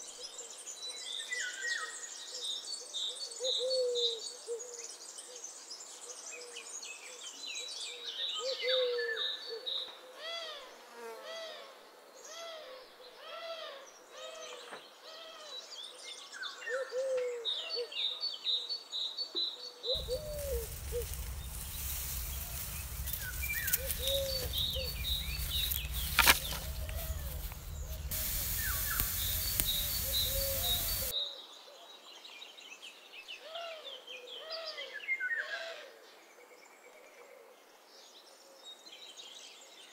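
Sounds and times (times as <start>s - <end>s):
low rising and falling animal calls: 20.0s - 31.1s
wind rumbling on microphone: 20.0s - 31.1s.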